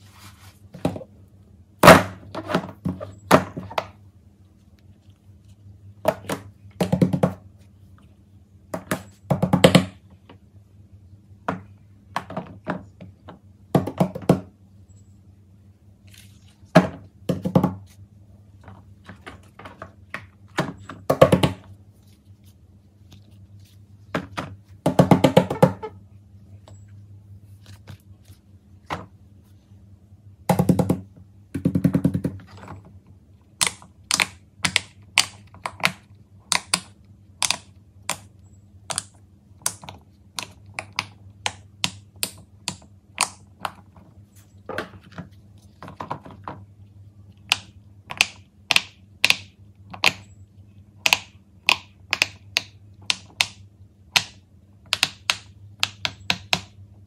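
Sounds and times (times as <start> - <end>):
silicone toys thunking and rubbing: 0.0 - 1.2, 1.8 - 4.0, 18.6 - 26.0, 38.9 - 46.7
faint low hum: 0.0 - 57.0.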